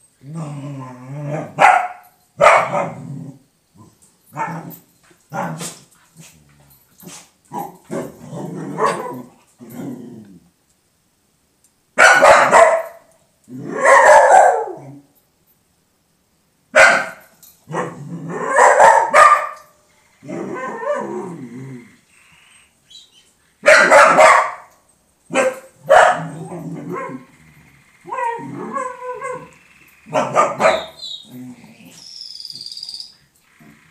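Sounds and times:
dog barking: 0:01.4 - 0:03.0, 0:04.4 - 0:05.8, 0:08.8 - 0:09.3, 0:12.0 - 0:13.1, 0:13.7 - 0:14.8, 0:16.8 - 0:19.8, 0:23.6 - 0:24.7, 0:25.3 - 0:27.3, 0:28.0 - 0:31.1.

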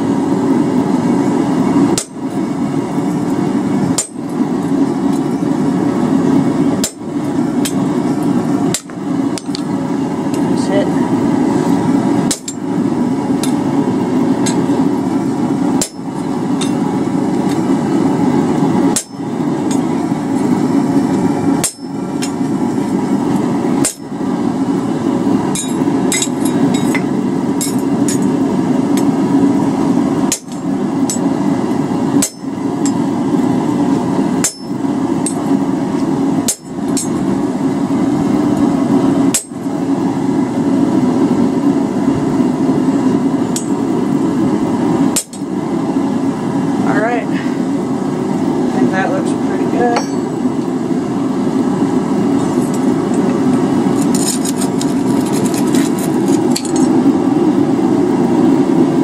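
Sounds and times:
hammer striking chisel on metal: 0:21.6 - 0:21.9, 0:32.2 - 0:33.0, 0:50.0 - 0:50.3.

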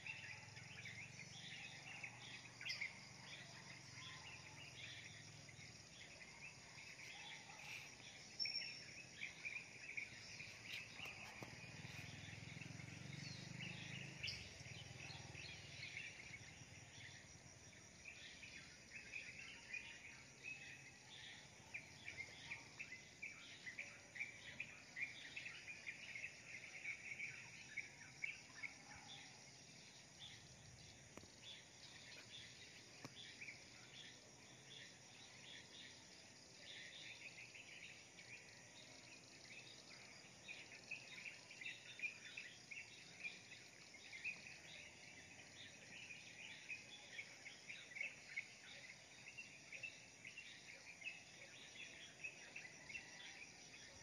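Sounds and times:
small birds chirping: 0:00.0 - 0:54.0.

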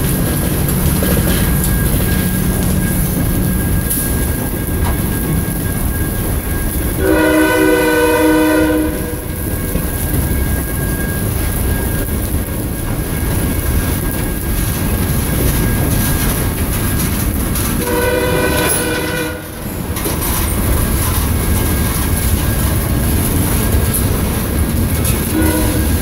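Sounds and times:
freight train rumble and wheel clatter: 0:00.0 - 0:26.0
locomotive horn: 0:07.0 - 0:09.4, 0:17.8 - 0:19.8, 0:25.2 - 0:26.0.

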